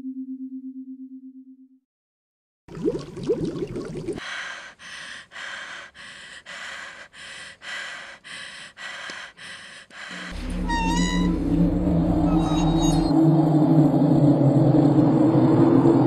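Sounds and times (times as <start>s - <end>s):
underwater bubbling: 2.7s - 4.2s
woman panting: 4.2s - 10.4s
low steady drone: 8.4s - 16.0s.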